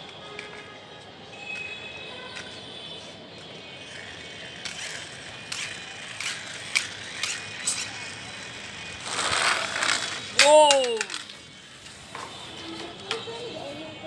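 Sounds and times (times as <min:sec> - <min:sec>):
toy car gears ratcheting: 0:03.6 - 0:13.2.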